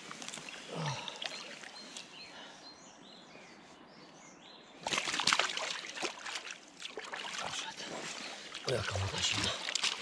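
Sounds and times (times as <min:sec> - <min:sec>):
fish splashing in shallow water: 0:04.8 - 0:10.0.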